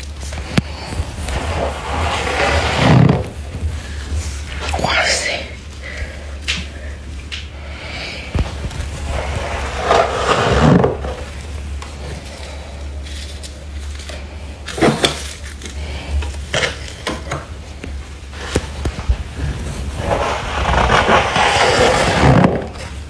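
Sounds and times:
steady low hum: 0.0 - 23.0
gloved hand scraping frost: 0.2 - 4.0, 8.9 - 11.4, 19.4 - 23.0.

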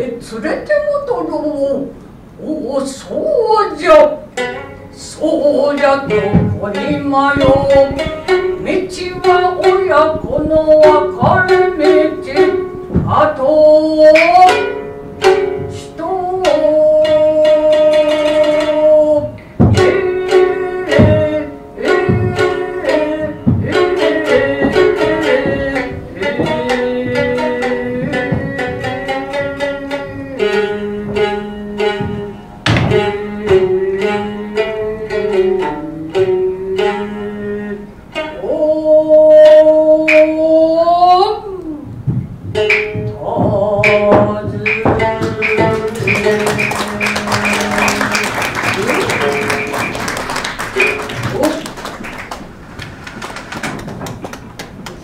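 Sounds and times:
narrator chanting and singing: 0.0 - 4.2, 43.0 - 48.1
plucked shamisen strokes: 3.1 - 54.1.

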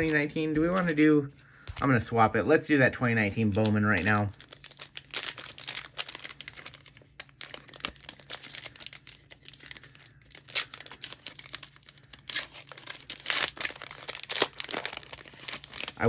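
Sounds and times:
foil wrapper crinkling: 0.0 - 1.2, 3.0 - 16.0
foil wrapper ripping: 3.3 - 16.0.

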